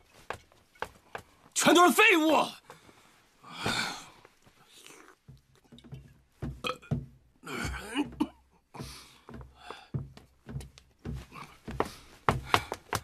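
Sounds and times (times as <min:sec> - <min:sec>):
knocks and thuds: 0:05.3 - 0:13.0
man belching: 0:06.6 - 0:08.4.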